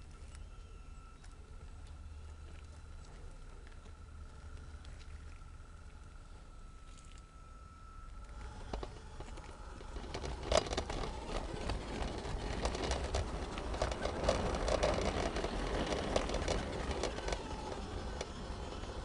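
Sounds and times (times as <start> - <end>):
wheels clicking on rails: 8.2 - 19.0
model train rumbling on track: 8.3 - 19.0.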